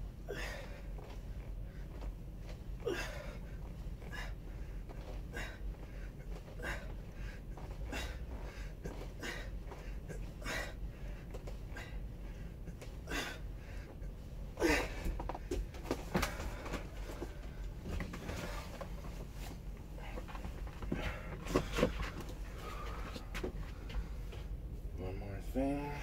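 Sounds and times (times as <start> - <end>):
steady low hum: 0.0 - 26.0
man breathing hard: 0.2 - 2.0, 2.7 - 19.2, 19.8 - 24.5
man grunting: 14.6 - 15.0.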